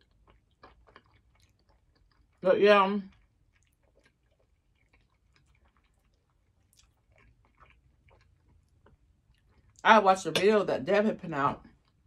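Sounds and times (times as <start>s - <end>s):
chewing with mouth closed: 0.0s - 2.4s, 3.0s - 9.8s.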